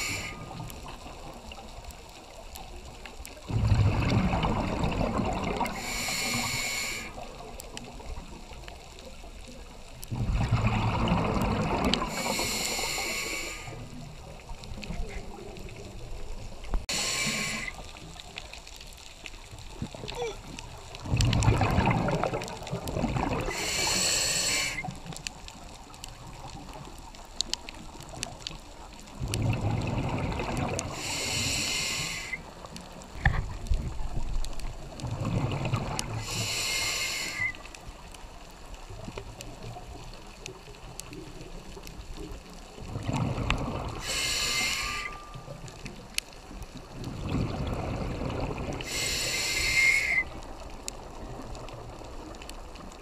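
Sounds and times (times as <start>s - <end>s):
diver breathing through regulator: 0.0s - 0.6s, 5.7s - 7.2s, 12.0s - 13.9s, 16.9s - 17.9s, 23.4s - 24.9s, 30.9s - 32.5s, 36.2s - 37.6s, 44.0s - 45.3s, 48.8s - 50.3s.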